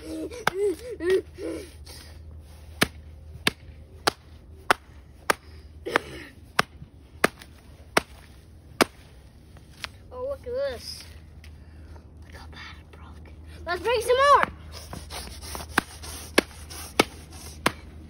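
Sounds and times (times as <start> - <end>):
hammer striking workbook: 15.5 - 17.8.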